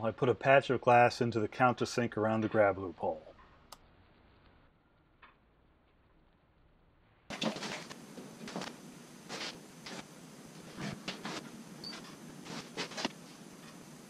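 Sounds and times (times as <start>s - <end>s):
low steady hiss: 0.0s - 14.0s
hands rustling and scraping wood: 7.3s - 13.9s.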